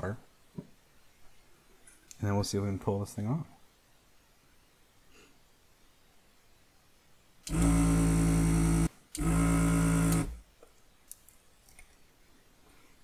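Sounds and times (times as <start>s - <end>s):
vacuum pump humming: 7.5s - 10.4s.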